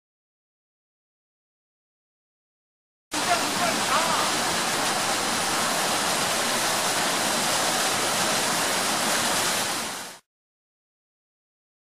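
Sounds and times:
stream flowing over stones: 3.2s - 10.3s.

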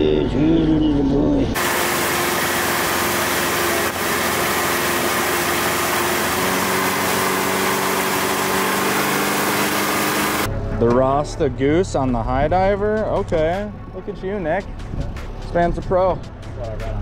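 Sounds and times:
second lower engine tone: 0.0s - 11.0s
boat wake rushing: 1.6s - 10.5s
outboard motor running: 1.6s - 10.5s.

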